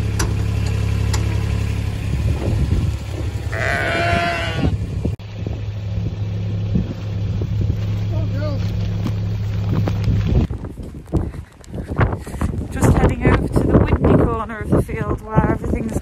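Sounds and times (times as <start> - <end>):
low engine drone: 0.0 - 10.5
sheep bleating: 3.5 - 4.8.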